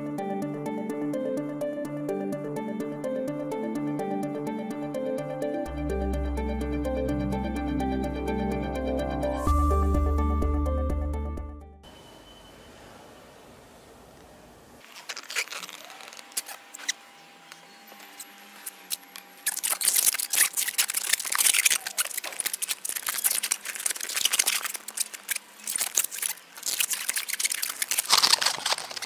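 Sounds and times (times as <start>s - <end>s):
balloon squeaking and rubbing: 14.8s - 17.0s, 18.6s - 29.0s.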